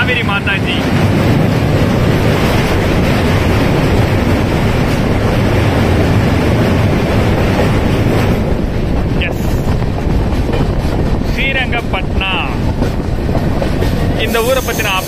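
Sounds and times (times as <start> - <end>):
train running over bridge: 0.0 - 15.0
wind on microphone: 0.0 - 15.0.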